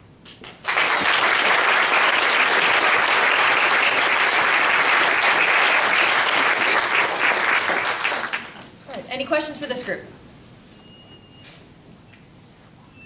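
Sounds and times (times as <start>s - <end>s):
audience applauding: 0.5s - 8.7s.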